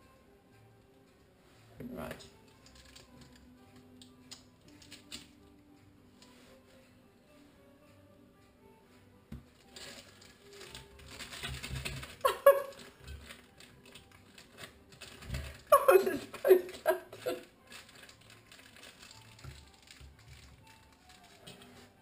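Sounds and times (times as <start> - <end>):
plastic piping bag rustling: 9.5 - 22.0
woman laughing: 12.2 - 12.9, 15.6 - 17.5.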